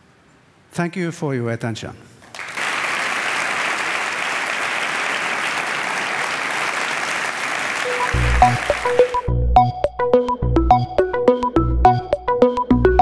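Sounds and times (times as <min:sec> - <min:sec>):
audience applauding: 0:02.3 - 0:09.3
electronic music with pulsing bass: 0:08.0 - 0:13.0.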